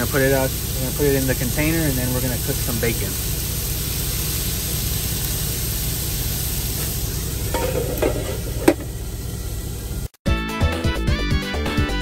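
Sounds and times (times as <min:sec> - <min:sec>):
chicken sizzling in a skillet: 0:00.0 - 0:10.1
glass lid clinking on skillet: 0:07.5 - 0:08.8.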